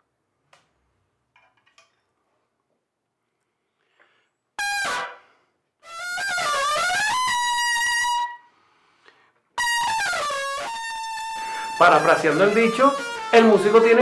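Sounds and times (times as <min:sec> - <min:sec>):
solo trumpet with bent notes: 0:04.6 - 0:05.2, 0:05.8 - 0:08.5, 0:09.6 - 0:14.0.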